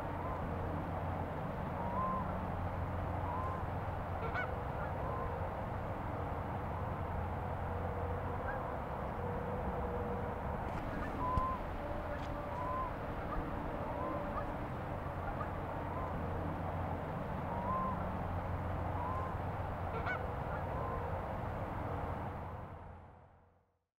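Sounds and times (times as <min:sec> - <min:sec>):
steady background noise: 0:00.0 - 0:23.4
geese honking: 0:01.7 - 0:02.4, 0:03.2 - 0:05.5, 0:07.8 - 0:16.8, 0:17.4 - 0:18.2, 0:18.8 - 0:21.3.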